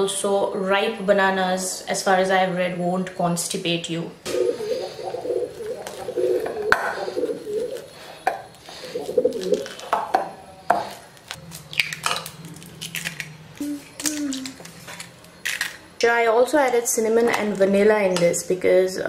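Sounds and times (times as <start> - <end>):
wavering cooing: 4.3 - 7.9
masher squishing bananas in a bowl: 4.4 - 10.1.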